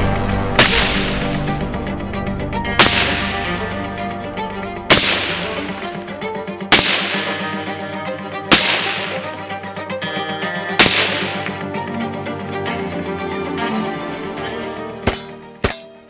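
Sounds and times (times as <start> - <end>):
background music: 0.0 - 16.0
suppressed rifle shots: 0.6 - 1.4, 2.8 - 3.6, 4.9 - 5.8, 6.7 - 7.6, 8.5 - 9.4, 10.8 - 11.6.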